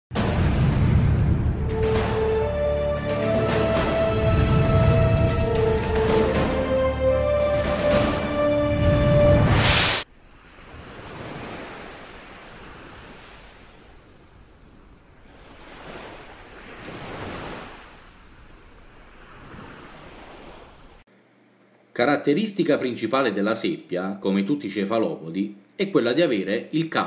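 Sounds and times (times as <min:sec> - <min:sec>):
loud intro music: 0:00.1 - 0:10.0
sea waves washing: 0:00.2 - 0:21.0.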